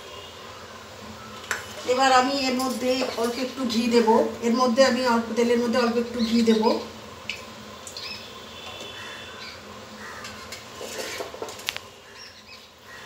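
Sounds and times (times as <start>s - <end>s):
spoon clinking on metal cookware: 2.5s - 3.5s.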